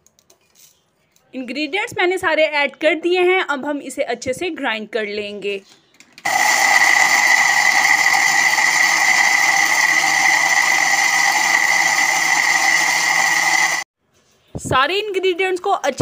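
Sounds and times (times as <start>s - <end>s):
spice grinder motor whining: 6.3s - 13.9s.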